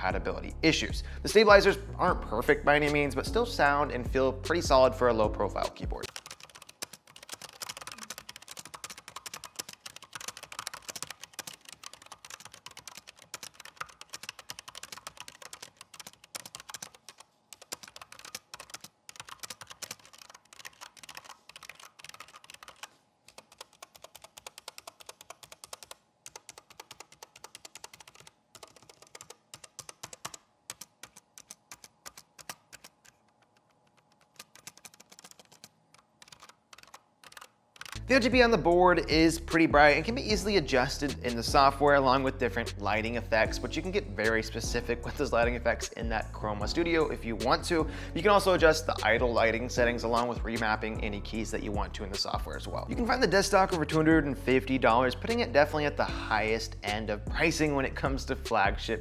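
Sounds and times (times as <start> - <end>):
quiet keyboard typing: 5.6 - 38.4.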